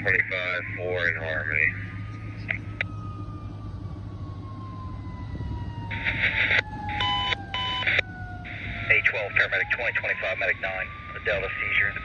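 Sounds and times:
radio scanner static and tones: 0.0s - 2.9s, 5.9s - 12.0s
distant siren wail: 0.0s - 12.0s
road traffic hum: 0.0s - 12.0s.

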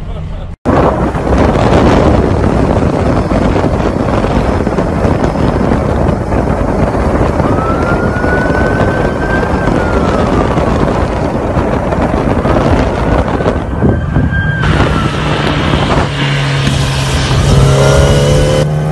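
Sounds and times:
wind buffeting microphone: 0.6s - 18.9s
faint police siren wail: 7.1s - 16.1s.

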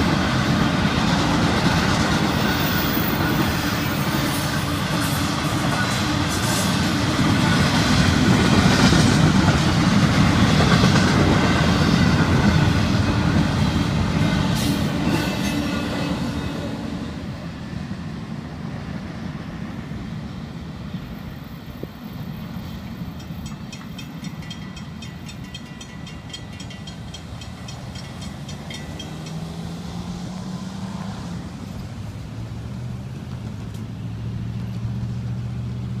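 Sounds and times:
freight train wheels rumbling: 0.0s - 36.0s
car driving past: 28.6s - 31.9s.

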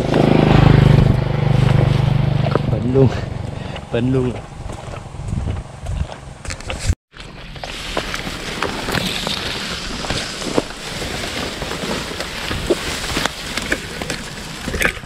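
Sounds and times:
grass rustling and crackling: 4.4s - 15.0s
dry stems snapping: 8.0s - 15.0s.

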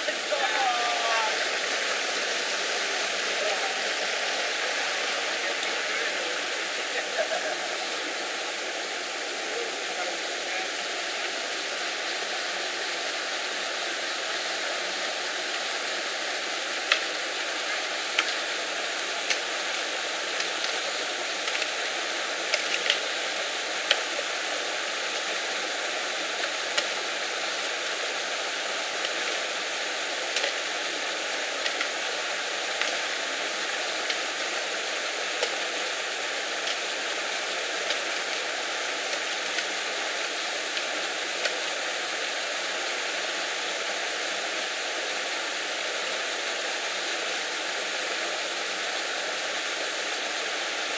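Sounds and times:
rushing stream: 0.0s - 50.9s.

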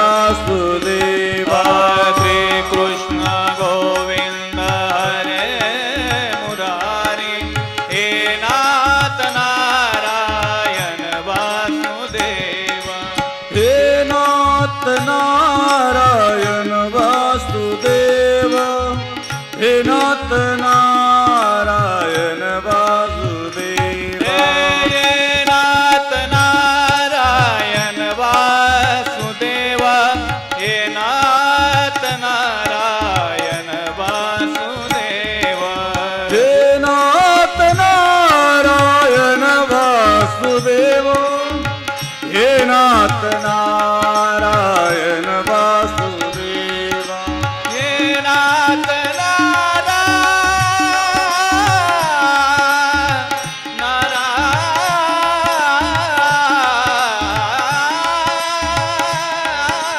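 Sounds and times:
man singing sliding melody: 0.0s - 59.9s.

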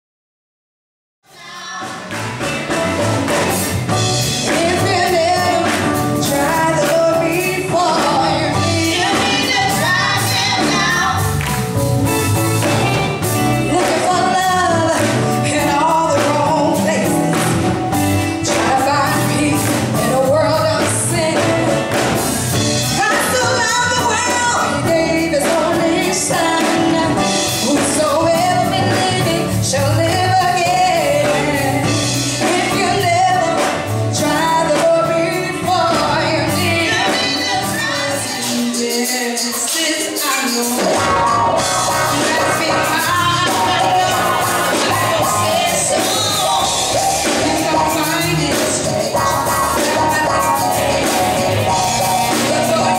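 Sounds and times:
instrumental backing with drum beat: 1.3s - 52.9s
women singing in harmony: 4.4s - 11.3s, 23.0s - 40.9s, 41.9s - 52.9s.

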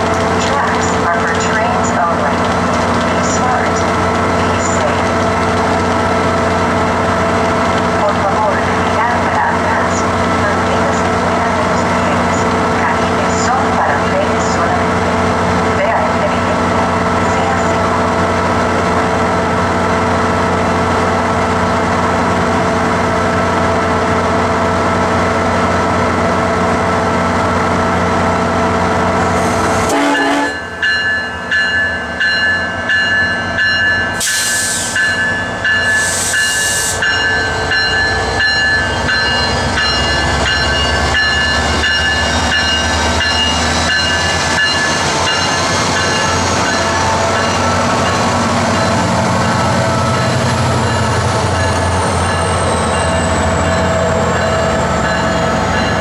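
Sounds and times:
diesel locomotive humming: 0.0s - 56.0s.

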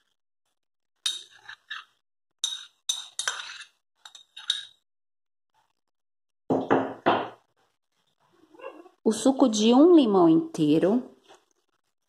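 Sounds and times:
metal spoon clinking on ceramic bowl: 1.1s - 1.8s, 2.4s - 4.8s
loud knock: 6.5s - 7.4s.

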